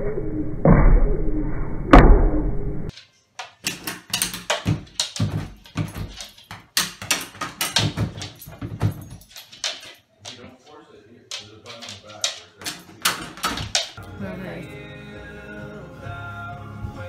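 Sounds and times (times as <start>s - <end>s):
door flap rattling and clacking: 3.6s - 10.4s, 11.3s - 14.0s.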